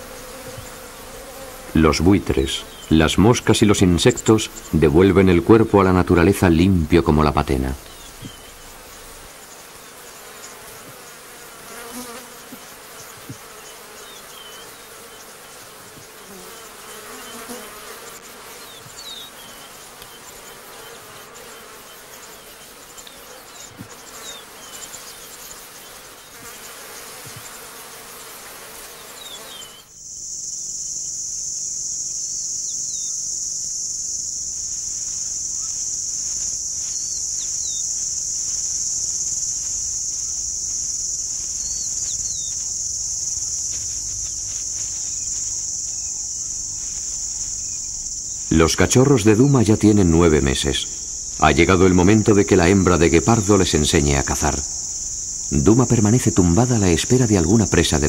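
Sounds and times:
crickets droning: 0:00.0 - 0:58.0
flies buzzing: 0:00.0 - 0:58.0.

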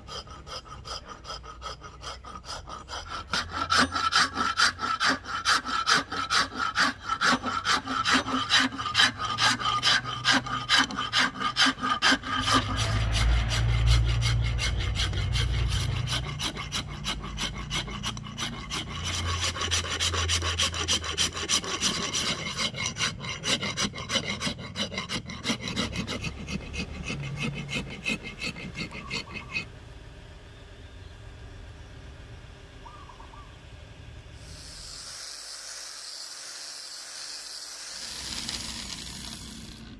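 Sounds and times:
hand files rasping wood: 0:00.0 - 0:29.7
low rumble: 0:12.6 - 0:17.4.

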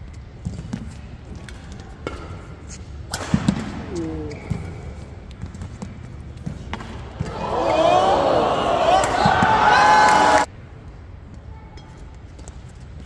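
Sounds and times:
court shoes squeaking: 0:00.0 - 0:08.1.

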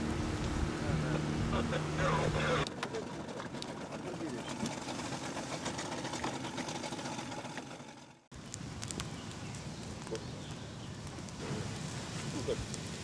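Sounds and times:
noisy outdoor background: 0:00.0 - 0:13.0
campfire crackling and popping: 0:08.3 - 0:13.0.

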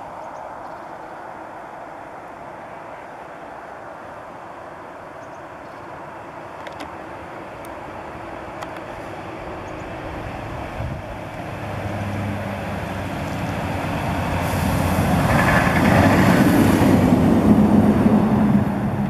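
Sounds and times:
tyres rushing on snowy road: 0:06.0 - 0:19.0
truck diesel engine: 0:09.0 - 0:19.0.

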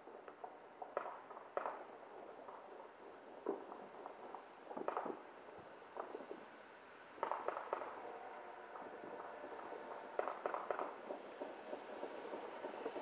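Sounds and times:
firecracker pops: 0:04.7 - 0:05.2, 0:07.2 - 0:08.2, 0:09.6 - 0:13.0.

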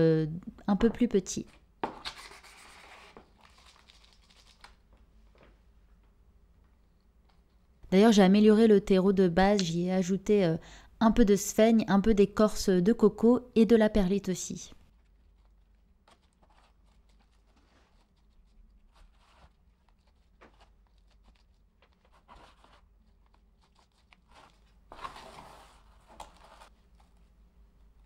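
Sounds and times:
potting mix rustling in pot: 0:16.3 - 0:27.2.

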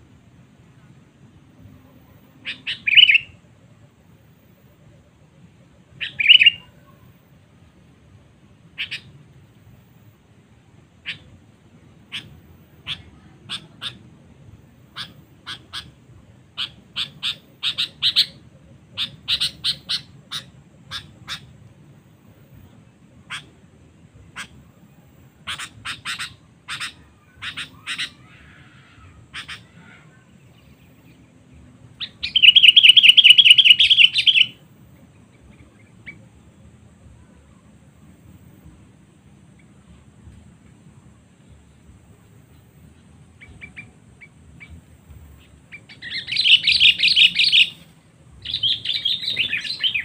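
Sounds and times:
bird calls and chattering: 0:01.8 - 0:03.4, 0:05.9 - 0:07.1, 0:08.8 - 0:09.2, 0:11.0 - 0:11.4, 0:12.0 - 0:14.0, 0:14.7 - 0:21.6, 0:22.6 - 0:23.6, 0:24.2 - 0:36.6, 0:41.4 - 0:50.0.

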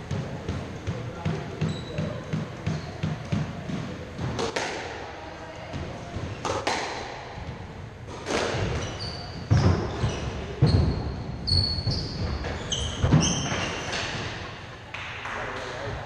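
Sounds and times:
shoes squeaking on wooden floor: 0:01.1 - 0:03.3, 0:08.5 - 0:14.4
squash ball cracks: 0:04.3 - 0:05.0, 0:06.4 - 0:07.3.

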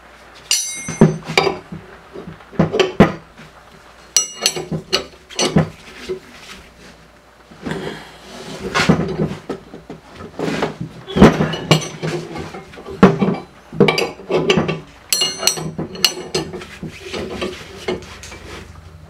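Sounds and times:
wrench clinking on metal press: 0:00.5 - 0:01.2, 0:04.2 - 0:05.6, 0:13.2 - 0:16.5.

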